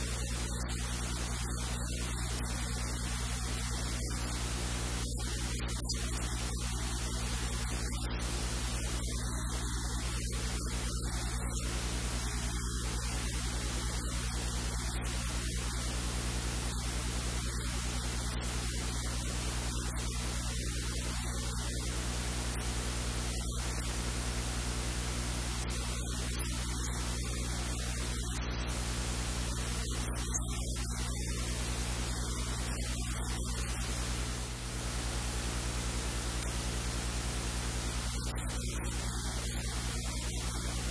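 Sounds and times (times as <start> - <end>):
electrical static hiss: 0.0 - 40.9
low mains hum: 0.0 - 40.9.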